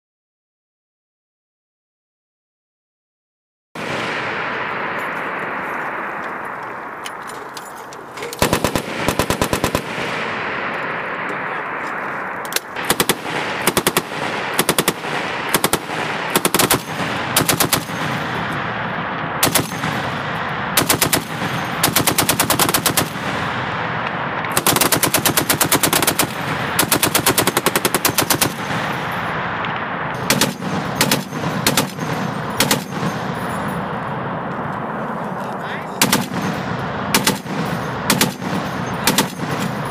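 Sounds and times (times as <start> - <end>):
rushing background noise: 3.8 - 39.9
machine gun firing bursts: 8.3 - 10.6, 12.6 - 18.6, 19.4 - 23.6, 24.5 - 29.1, 30.1 - 33.5, 36.0 - 39.9.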